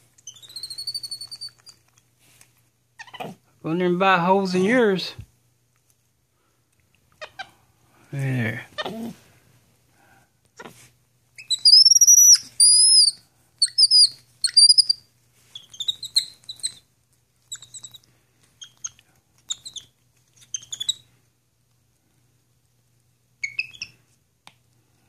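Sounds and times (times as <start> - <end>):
monkey squeaky chirps: 0.2 - 1.8, 3.0 - 3.4, 11.4 - 21.0, 23.4 - 24.0.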